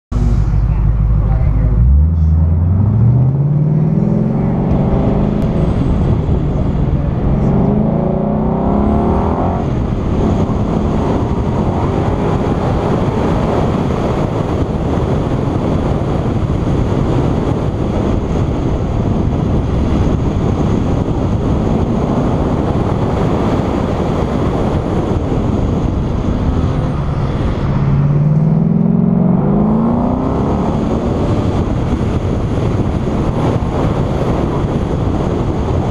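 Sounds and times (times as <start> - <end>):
steady rush of noise: 0.1 - 35.9
car engine revving hard: 1.8 - 35.9.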